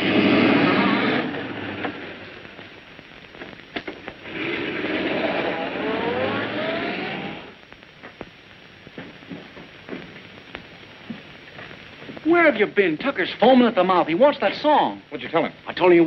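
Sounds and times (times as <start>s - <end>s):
car engine speeding up: 0.0s - 2.0s, 4.2s - 7.6s.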